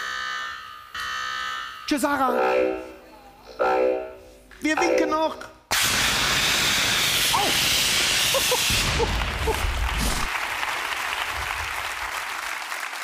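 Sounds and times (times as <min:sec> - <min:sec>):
smoke jet hissing: 0:05.7 - 0:09.1.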